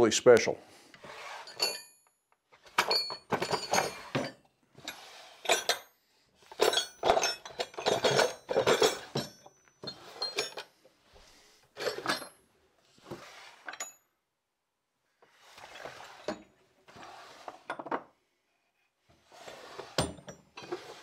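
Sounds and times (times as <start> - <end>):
metal tools clinking and rattling: 1.4 - 2.0, 2.6 - 10.7, 11.8 - 12.4
wooden drawers opening and shutting: 2.6 - 5.8, 6.5 - 10.6, 11.8 - 12.3, 15.4 - 18.1, 19.2 - 21.0.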